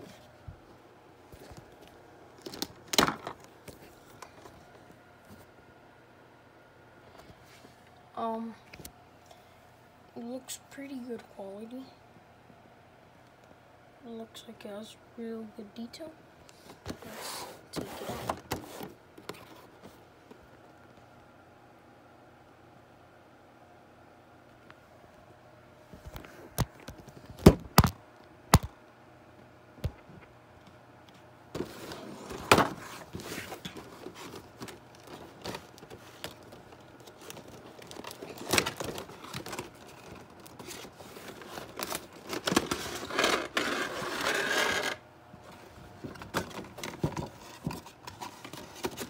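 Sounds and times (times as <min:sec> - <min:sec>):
plastic tray crinkling: 0:31.6 - 0:45.0.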